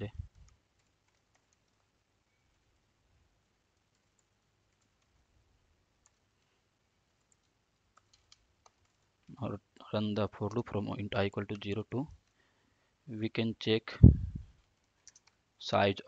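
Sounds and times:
computer keyboard keystrokes: 0.3s - 1.9s, 3.7s - 5.2s, 6.0s - 6.2s, 7.1s - 9.3s, 14.6s - 15.4s.

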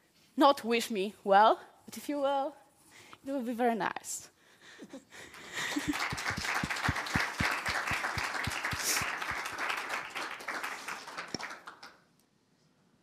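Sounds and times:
close hands clapping steadily: 5.2s - 12.0s
audience applauding: 5.3s - 12.0s.

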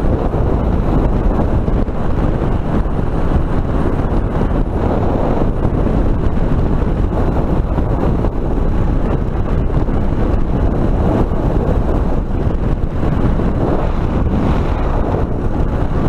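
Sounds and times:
motorcycle engine running: 0.0s - 16.0s
wind buffeting microphone: 0.0s - 16.0s.

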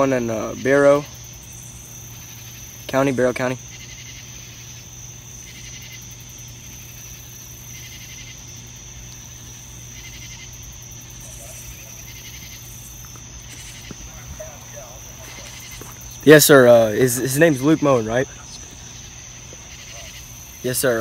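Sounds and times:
insect high-pitched trill: 0.0s - 21.0s
insect rasping chirp: 0.0s - 21.0s
low steady hum: 3.6s - 21.0s.

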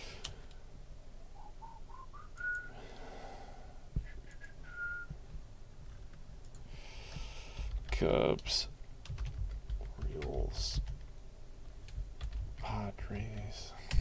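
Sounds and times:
man whistling softly: 1.3s - 2.8s, 4.0s - 5.2s.

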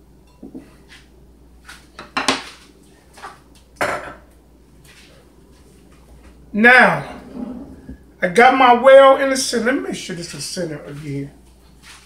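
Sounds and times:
bowls and utensils clinking: 0.2s - 0.8s.

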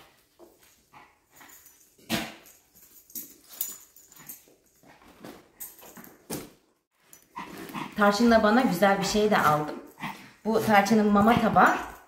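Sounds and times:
knocks and rustles of handling: 0.0s - 7.8s.

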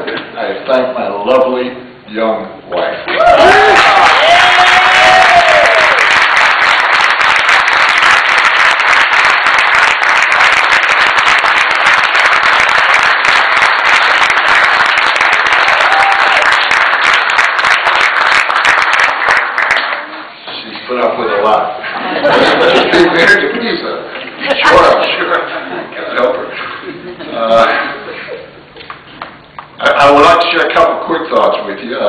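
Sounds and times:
audience applauding: 3.1s - 20.1s.

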